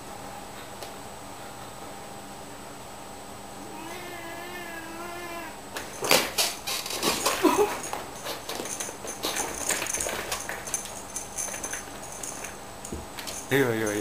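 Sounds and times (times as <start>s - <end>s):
cat crying: 3.6s - 5.6s
cat growling: 3.6s - 5.6s
cats scuffling and thumping: 5.7s - 14.0s
claws scratching on chair: 5.8s - 11.1s.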